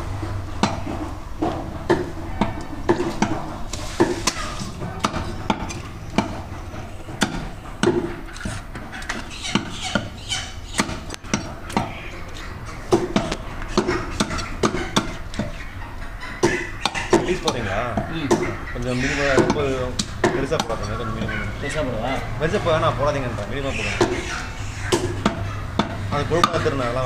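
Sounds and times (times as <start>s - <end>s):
cleaver chopping on wooden block: 10.8s - 11.9s, 12.9s - 15.2s, 16.4s - 18.5s, 24.9s - 26.7s.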